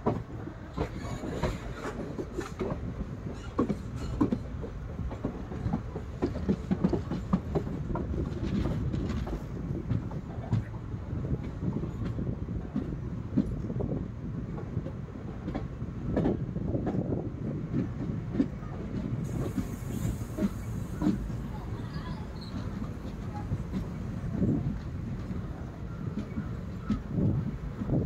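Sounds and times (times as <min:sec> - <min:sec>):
wheels clicking on track: 0:00.0 - 0:13.7
train rumbling on rails: 0:00.0 - 0:28.0.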